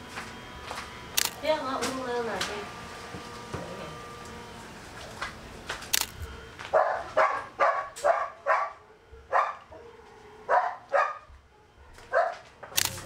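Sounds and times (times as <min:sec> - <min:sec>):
dog barking: 0:06.3 - 0:12.5.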